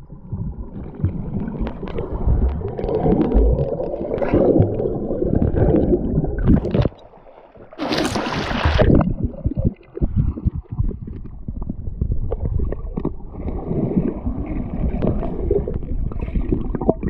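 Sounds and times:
underwater stream gurgling: 0.0s - 17.0s
water splashing at surface: 7.7s - 11.2s.

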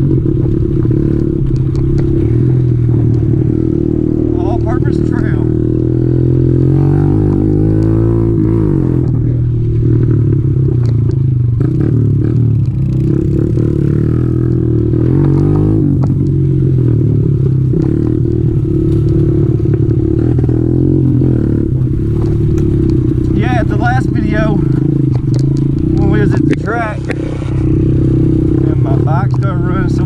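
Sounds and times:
small motorcycle engine revving: 0.0s - 30.0s
bike clicks and knocks: 17.7s - 20.7s.

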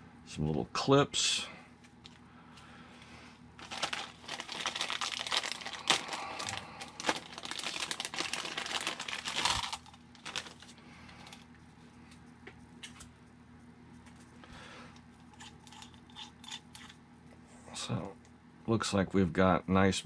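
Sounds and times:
plastic bag crinkling: 3.6s - 11.4s.

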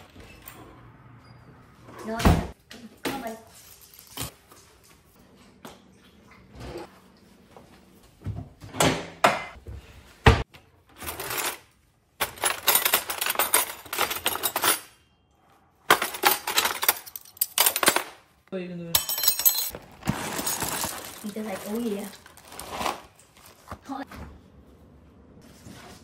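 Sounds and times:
cutlery rattling and clinking: 11.0s - 15.0s, 15.9s - 18.2s, 19.0s - 22.0s.

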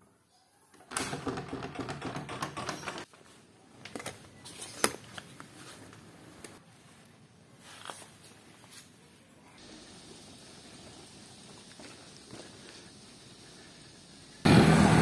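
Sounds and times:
wooden doors rattling open: 0.8s - 3.1s.

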